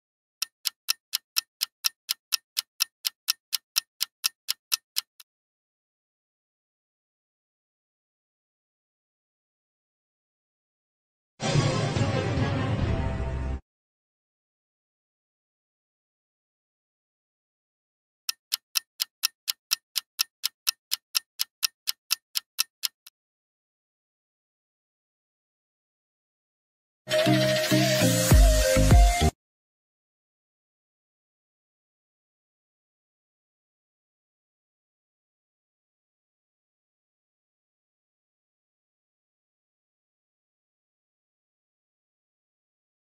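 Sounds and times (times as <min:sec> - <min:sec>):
clock ticking: 0:00.4 - 0:05.3, 0:18.3 - 0:23.1.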